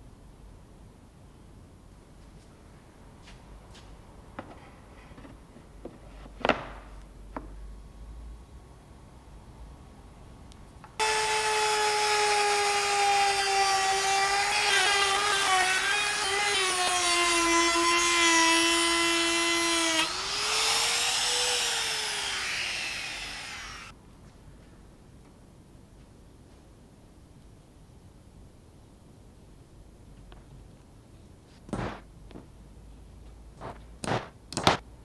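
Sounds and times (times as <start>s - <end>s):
trim router whining: 11.0s - 23.9s.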